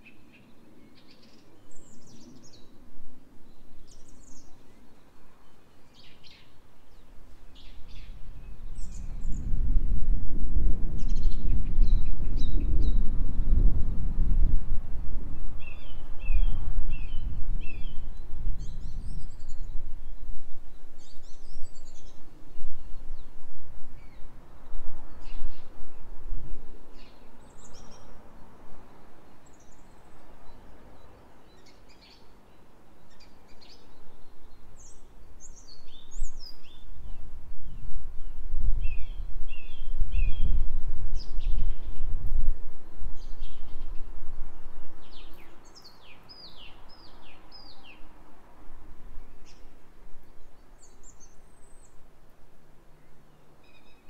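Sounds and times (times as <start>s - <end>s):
small birds chirping: 0.0s - 2.9s, 3.5s - 9.6s, 26.9s - 40.6s, 43.2s - 48.1s
wind gusting across microphone: 6.0s - 32.0s, 32.6s - 52.9s.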